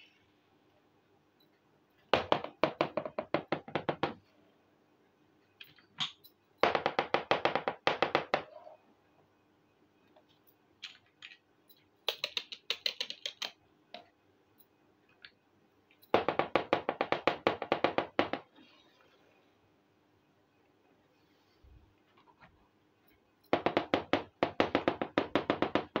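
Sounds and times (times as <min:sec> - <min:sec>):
tapping on toy kitchen pieces: 0:12.1 - 0:14.1.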